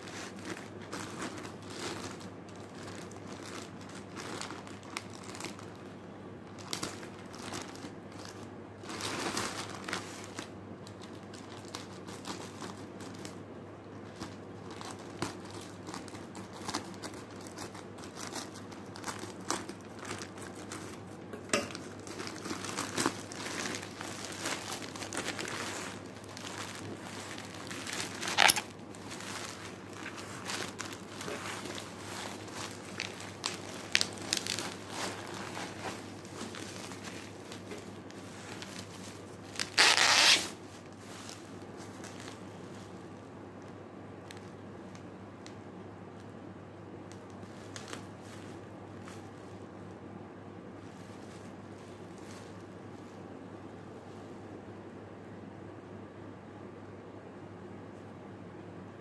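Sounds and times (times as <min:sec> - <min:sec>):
plastic mailer bag crinkling: 0:00.0 - 0:43.0
bubble wrap rustling: 0:00.0 - 0:50.0, 0:50.7 - 0:54.6.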